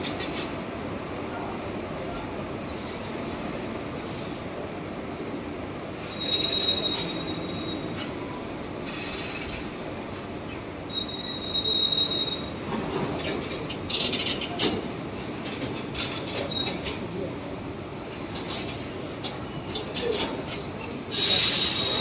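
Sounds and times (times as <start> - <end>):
wheels clacking over rail joints: 0.0 - 1.3, 6.3 - 22.0
train wheels rumbling on rail: 0.0 - 22.0
high wheel squeal: 6.0 - 9.6, 10.9 - 13.3.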